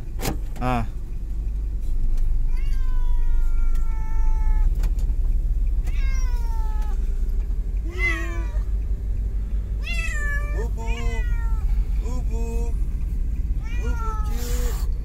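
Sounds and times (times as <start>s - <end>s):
low rumble: 0.9s - 15.0s
cat meowing: 2.3s - 4.8s, 5.8s - 7.0s, 7.8s - 8.8s, 9.8s - 11.7s, 13.6s - 14.9s.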